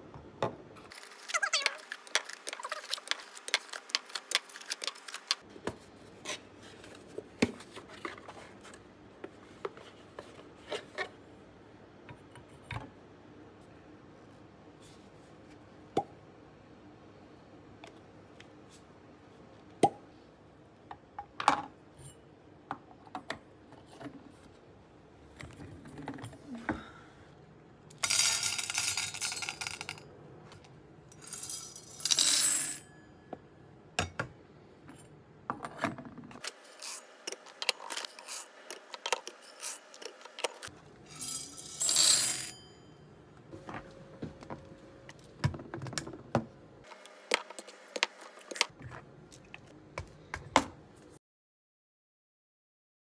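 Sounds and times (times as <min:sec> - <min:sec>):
coffee beans rattling: 0:36.4 - 0:42.5.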